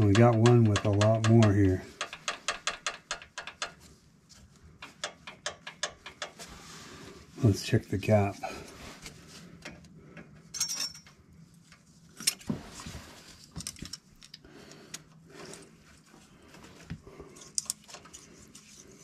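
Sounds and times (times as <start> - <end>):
light metallic clicks and jingles: 10.5 - 11.1.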